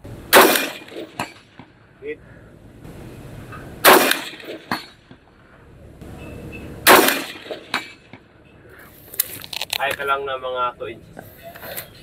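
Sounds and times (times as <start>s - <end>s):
rifle shots: 0.3s - 1.6s, 3.8s - 5.2s, 6.8s - 8.4s.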